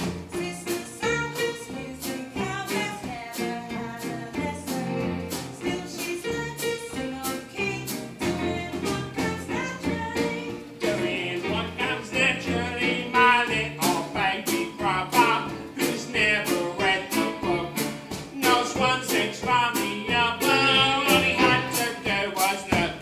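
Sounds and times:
live band playing: 0.0s - 23.0s
person singing: 5.6s - 23.0s.

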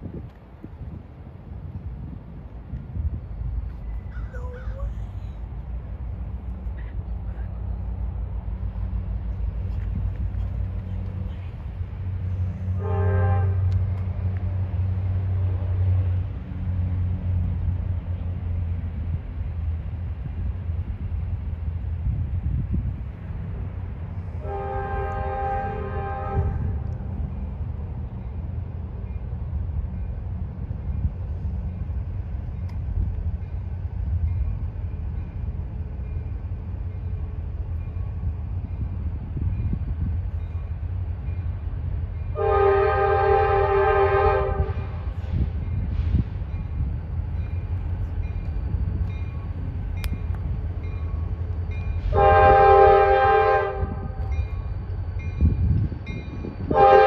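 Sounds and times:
locomotive air horn: 12.6s - 13.8s, 24.4s - 26.8s, 42.3s - 45.1s, 52.0s - 54.3s, 56.7s - 57.0s.

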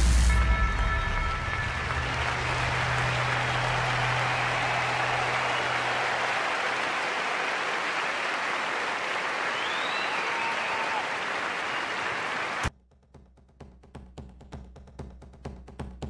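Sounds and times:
audience applauding: 1.6s - 12.7s
whistles from audience: 2.2s - 12.7s.

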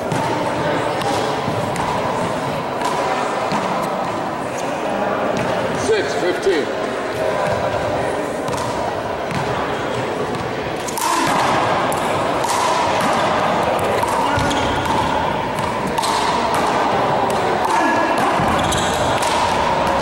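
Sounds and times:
hand striking ball: 11.0s - 20.0s.

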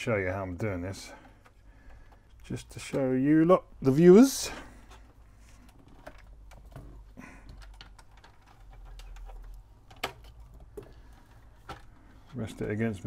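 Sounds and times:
hands tapping metal mechanism: 4.9s - 12.8s.

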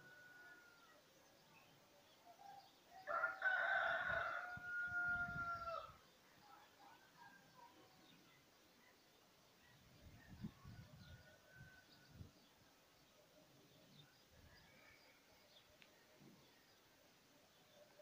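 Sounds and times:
rooster crowing: 3.0s - 6.0s.

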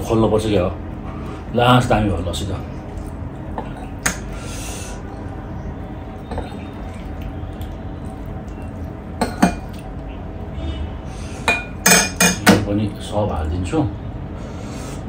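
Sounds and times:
tableware clinking: 9.2s - 9.8s, 11.4s - 12.6s.

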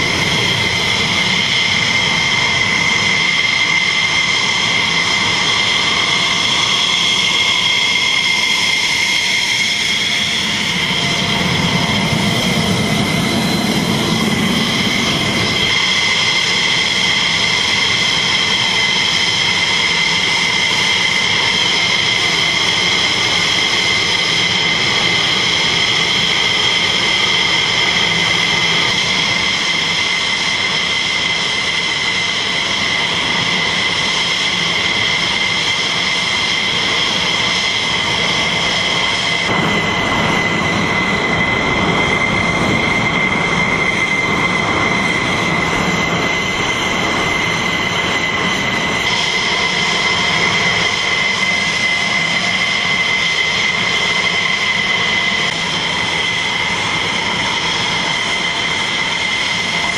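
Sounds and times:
jet engines whining: 0.0s - 59.9s
deep rumble: 37.5s - 51.7s.

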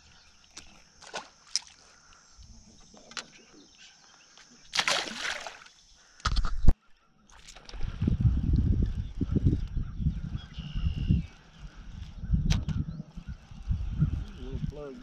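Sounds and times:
water splash and slosh: 0.5s - 1.9s, 4.7s - 5.8s.

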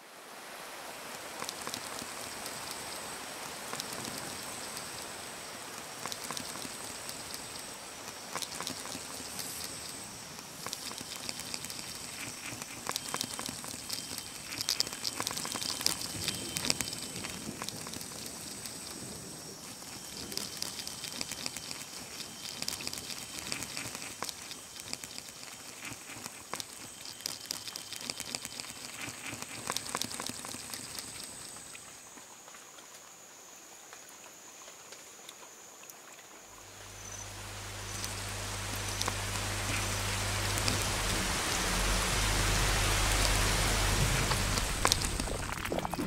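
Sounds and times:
rain pattering: 0.9s - 32.2s, 36.5s - 46.0s
low hum: 36.6s - 46.0s
heavy rain: 36.7s - 46.0s.

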